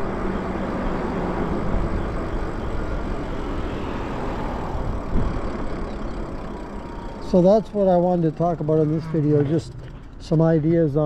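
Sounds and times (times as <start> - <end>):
wind buffeting microphone: 0.0 - 6.9
low thump: 5.1 - 5.4.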